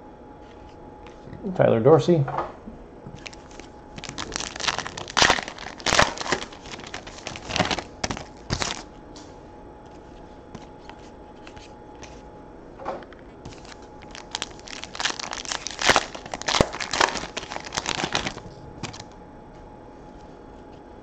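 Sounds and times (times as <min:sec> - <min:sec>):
foil wrapper crinkling and tearing: 0:03.2 - 0:08.9, 0:13.4 - 0:19.2.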